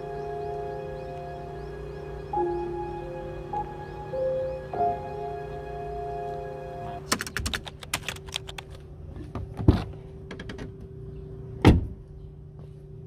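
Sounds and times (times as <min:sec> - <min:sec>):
faint background music: 0:00.0 - 0:07.7.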